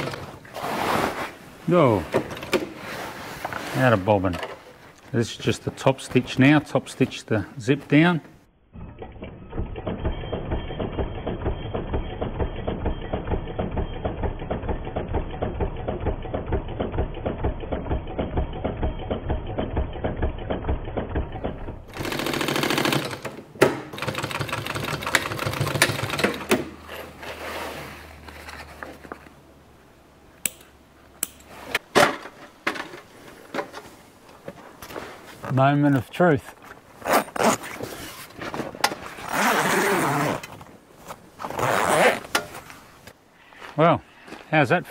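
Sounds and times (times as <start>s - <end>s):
sewing machine stitching: 20.0s - 23.3s, 23.9s - 26.6s.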